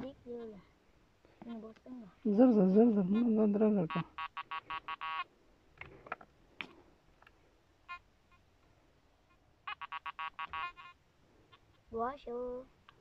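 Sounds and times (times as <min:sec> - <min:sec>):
metal detector short beeps: 0:03.9 - 0:05.2, 0:09.7 - 0:11.0.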